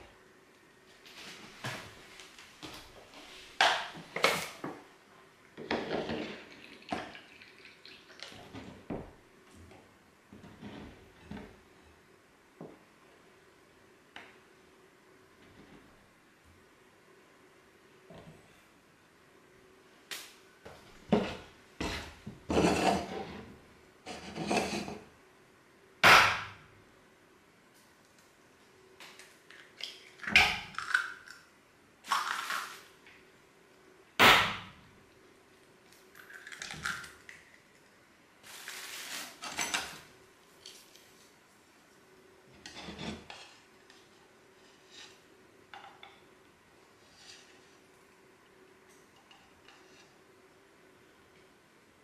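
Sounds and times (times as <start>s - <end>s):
water pouring into bowl: 6.2s - 8.4s.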